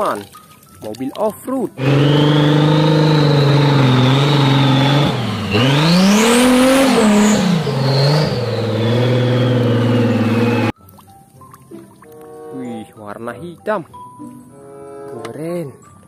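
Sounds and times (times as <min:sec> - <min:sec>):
off-road vehicle engine revving: 0:01.8 - 0:10.7.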